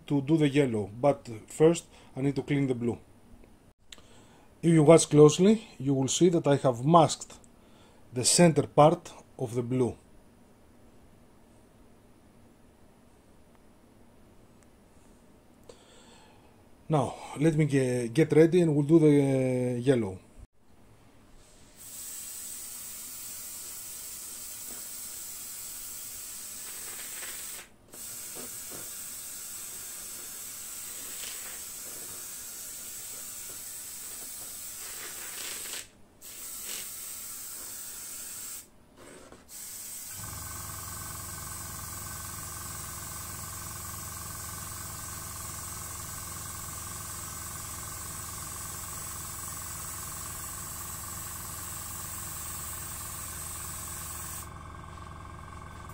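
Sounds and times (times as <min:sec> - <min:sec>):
airbrush hissing: 0:21.7 - 0:38.7, 0:39.5 - 0:54.7
machine hum: 0:40.1 - 0:55.9.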